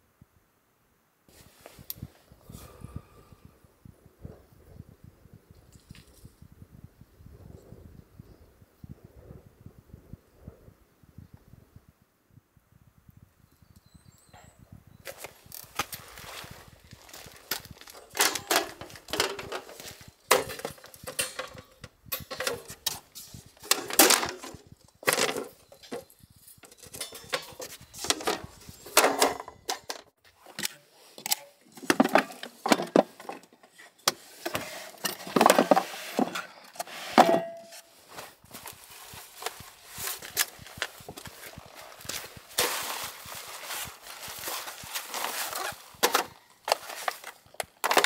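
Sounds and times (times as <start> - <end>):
camping gear knocking and clinking: 14.4 - 48.0.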